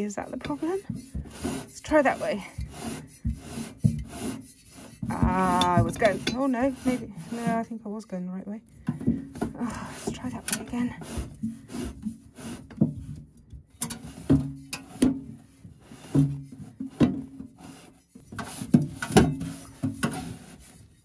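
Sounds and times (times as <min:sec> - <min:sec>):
gas bottle scraping: 0:00.0 - 0:07.9, 0:08.8 - 0:21.0
gas bottle knocking on metal: 0:05.1 - 0:06.5.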